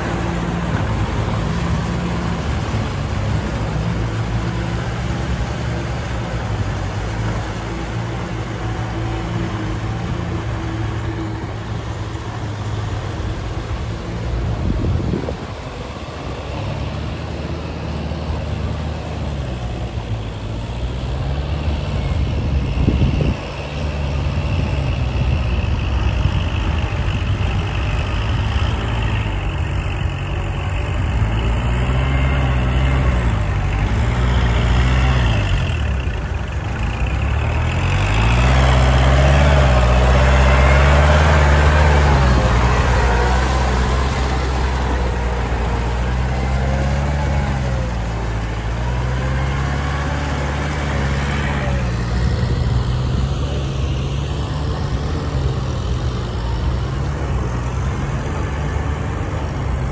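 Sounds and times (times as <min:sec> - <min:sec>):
tractor diesel engine under load: 0:00.0 - 0:59.9.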